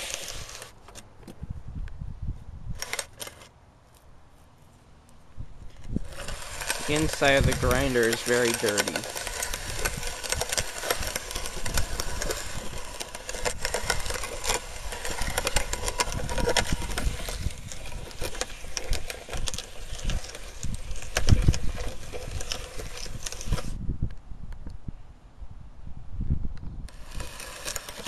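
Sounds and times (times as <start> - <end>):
hand-cranked grinder crunching grit: 0.0 - 1.0, 2.8 - 3.5, 5.6 - 23.8, 26.9 - 28.0.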